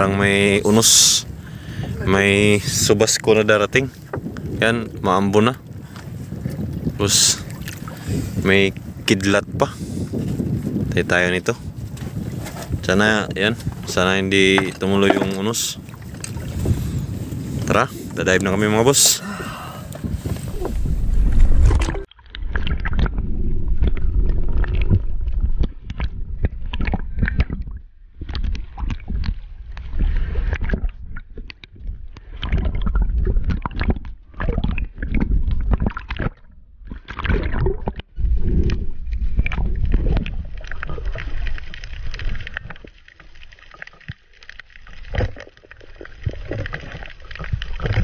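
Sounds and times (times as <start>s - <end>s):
water sloshing and gurgling: 0.0s - 48.0s
underwater knocks: 14.4s - 16.4s, 30.5s - 41.4s.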